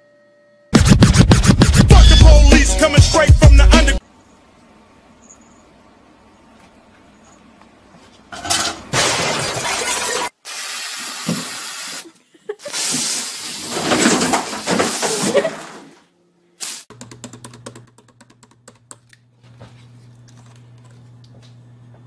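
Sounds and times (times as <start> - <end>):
rapid irregular clicking: 16.9 - 19.0.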